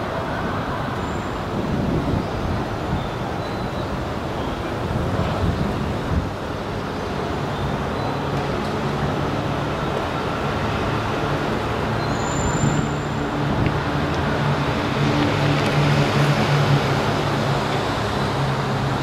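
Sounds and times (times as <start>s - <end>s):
electric trains rumbling: 0.0s - 19.0s
low hum of approaching train: 0.0s - 19.0s.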